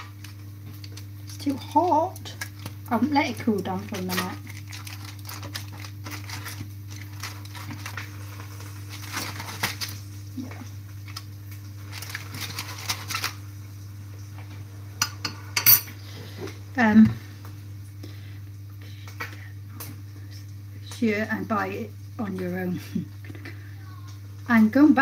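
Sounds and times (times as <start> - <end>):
foil crinkling: 0.0 - 13.8
steady low hum: 0.0 - 25.0.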